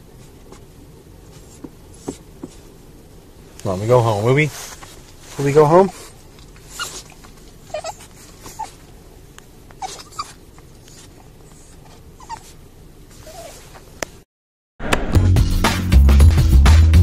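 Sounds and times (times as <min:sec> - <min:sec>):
low background hum: 0:00.0 - 0:14.2
dog whining: 0:05.8 - 0:08.9, 0:09.7 - 0:13.8.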